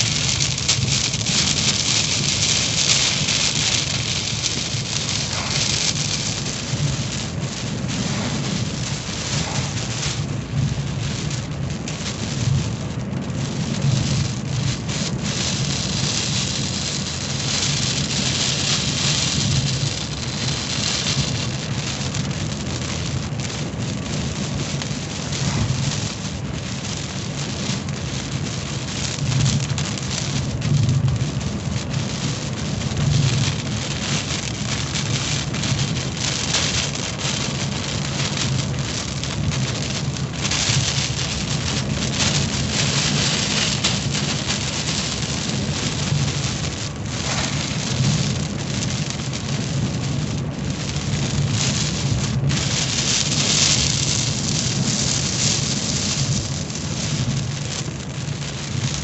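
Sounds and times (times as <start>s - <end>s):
car engine running: 0.0s - 11.9s
heavy rain on car roof: 0.0s - 59.0s
tyres on wet road: 0.0s - 59.0s.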